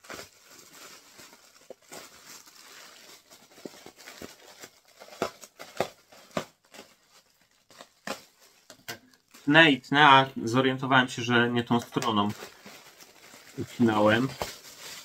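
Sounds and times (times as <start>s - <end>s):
scalpel cutting wrapping: 3.6s - 7.0s.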